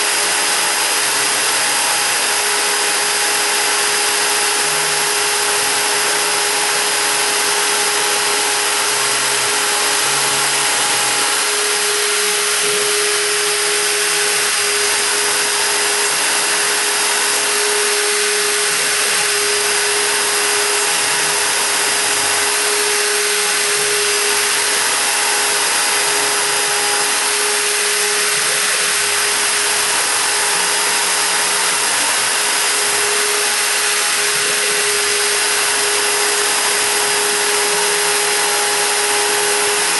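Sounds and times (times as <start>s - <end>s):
bit cutting into wood: 0.0s - 39.9s
router spindle whining: 0.0s - 39.9s.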